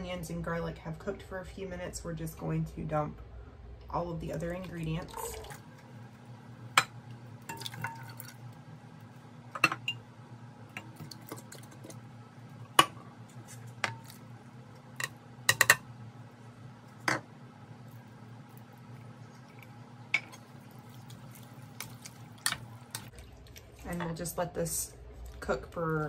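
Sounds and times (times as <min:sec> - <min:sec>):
steady low hum: 0:00.0 - 0:26.0
cans and bowl clinking on pot: 0:06.8 - 0:08.4.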